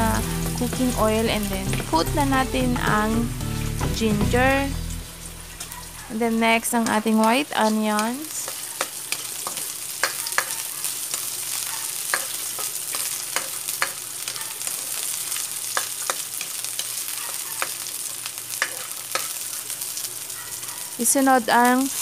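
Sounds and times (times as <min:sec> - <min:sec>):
ginger and onion sizzling in wok: 0:00.0 - 0:22.0
spatula scraping and tapping pan: 0:08.4 - 0:11.4, 0:12.1 - 0:15.0, 0:18.6 - 0:19.4.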